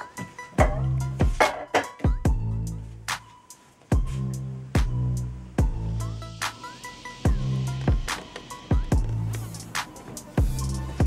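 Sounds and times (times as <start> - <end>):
bass notes: 0.6 - 1.4, 2.2 - 3.2, 4.0 - 6.5, 7.3 - 8.2, 8.8 - 9.8, 10.4 - 11.0
kick drum hits: 0.6 - 2.5, 4.0 - 4.2, 4.8 - 5.0, 7.3 - 9.2.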